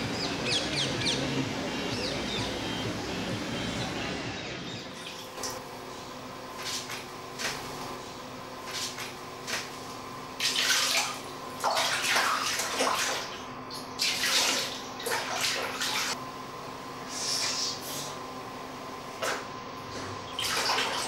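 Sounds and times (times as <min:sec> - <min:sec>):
faint steady hum: 0:00.0 - 0:21.0
water splashing in a basin: 0:10.4 - 0:16.2, 0:20.4 - 0:21.0.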